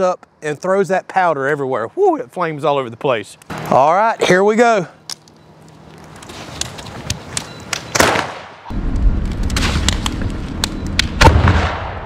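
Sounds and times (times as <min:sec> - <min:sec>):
fire crackling in a barrel: 0:03.2 - 0:11.9
steady low rumble: 0:08.7 - 0:12.0.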